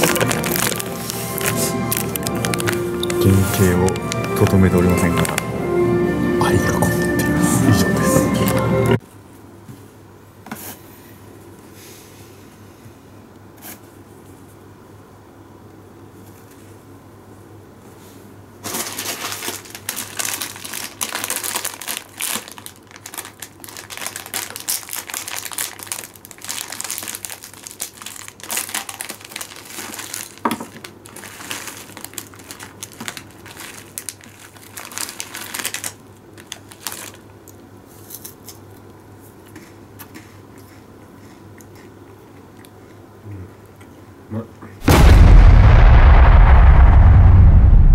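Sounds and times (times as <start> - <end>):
paper wrapping rustling: 0.0 - 5.4, 18.6 - 37.3
plastic snack bag crinkling: 0.0 - 5.4, 18.6 - 38.7.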